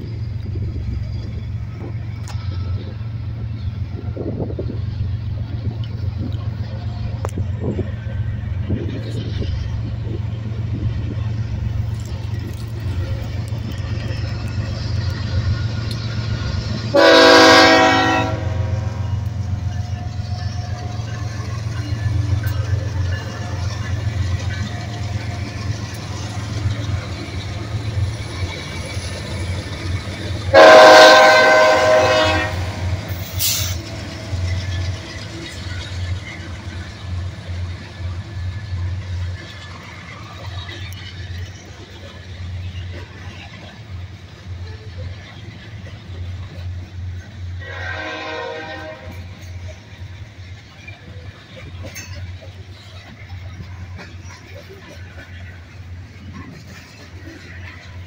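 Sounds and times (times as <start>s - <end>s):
diesel locomotives rumbling: 0.0s - 58.0s
locomotive air horn blast: 16.9s - 19.0s, 30.5s - 33.8s, 47.6s - 49.3s.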